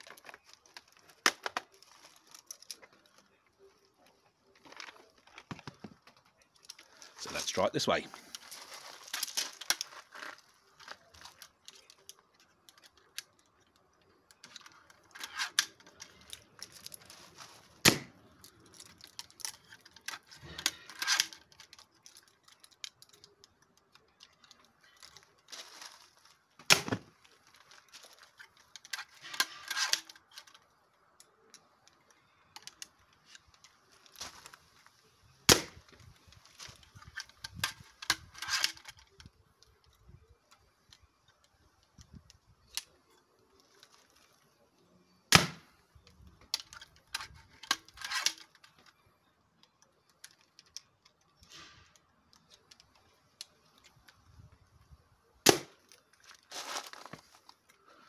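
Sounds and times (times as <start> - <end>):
crossbow cocking clicks and rattles: 0.0 - 7.2, 8.2 - 17.2, 17.8 - 45.2, 45.9 - 55.0
crossbow shot crack: 17.8 - 18.2, 35.5 - 35.8, 45.3 - 45.7, 55.4 - 55.8.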